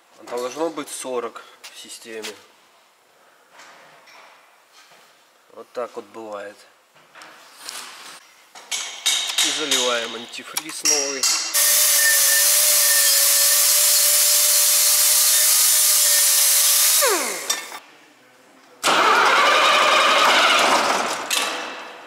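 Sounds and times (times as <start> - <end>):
pneumatic air wrench whining: 11.6 - 17.8, 18.8 - 21.2
diesel engine starting: 18.8 - 21.2.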